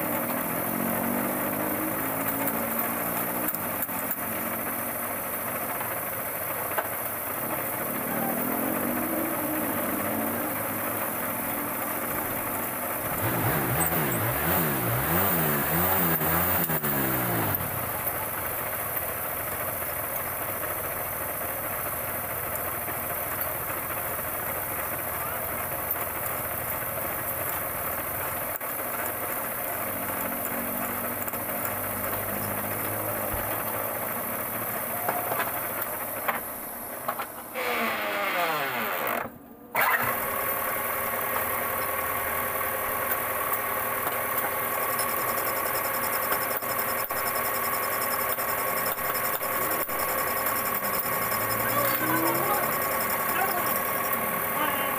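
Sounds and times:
metal lathe droning: 46.3 - 54.9.

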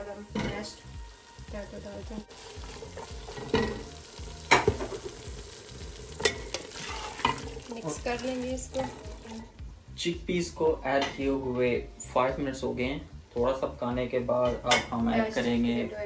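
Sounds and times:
food sizzling in a pan: 0.0 - 9.7, 13.7 - 16.0.

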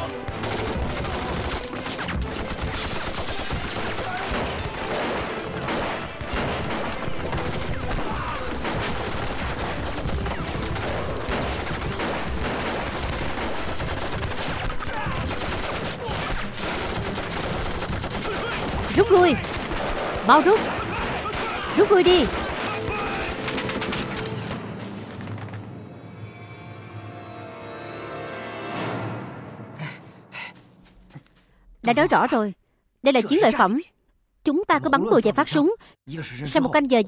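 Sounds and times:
dense rifle gunfire: 0.3 - 24.2.

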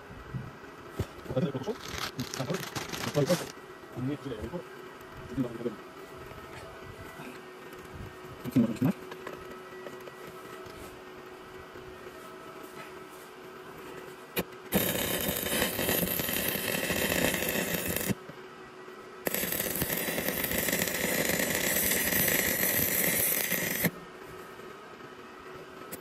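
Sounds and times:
welding arc crackling and hissing: 1.3 - 4.4, 14.3 - 18.2, 19.2 - 24.0.

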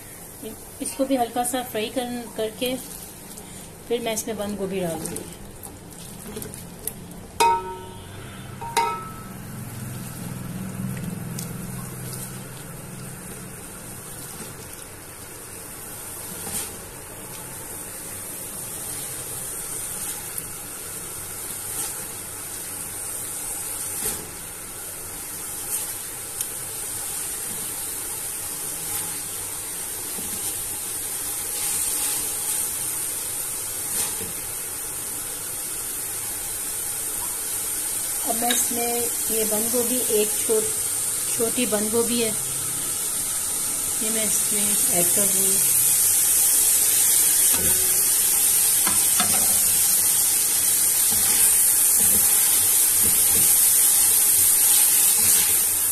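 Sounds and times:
vegetables sizzling in oil: 0.0 - 55.9
spatula clinking on pot: 7.4 - 8.0, 8.6 - 9.3.

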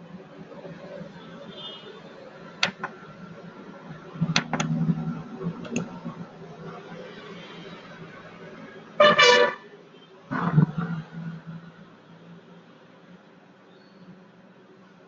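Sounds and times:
faint background noise: 0.0 - 15.0
computer mouse clicks: 5.6 - 5.9.

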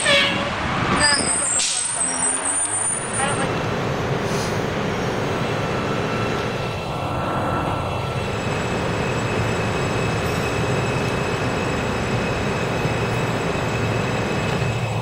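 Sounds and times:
subway train rumbling on rails: 0.0 - 15.0.

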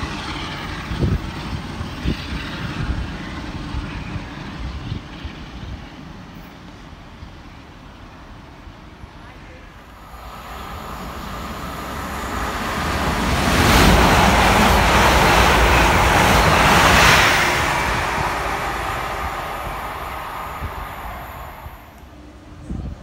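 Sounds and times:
train rushing past: 9.4 - 22.7.

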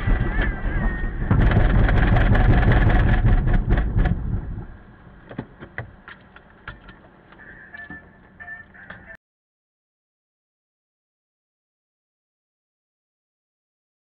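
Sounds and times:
loud low rumble with clattering: 0.0 - 9.1
quiet hum: 0.0 - 9.2.

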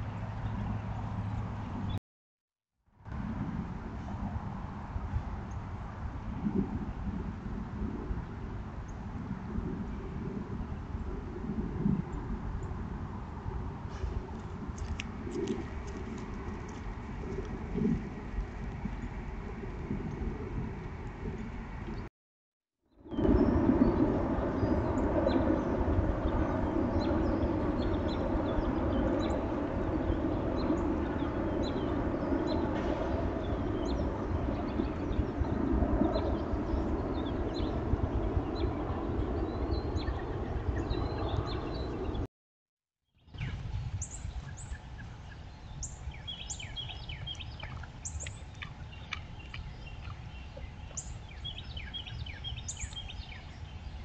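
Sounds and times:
low rumble: 3.1 - 22.1, 23.0 - 42.3
rushing outdoor noise: 3.1 - 22.1, 23.0 - 42.3
small birds chirping: 43.2 - 54.0.

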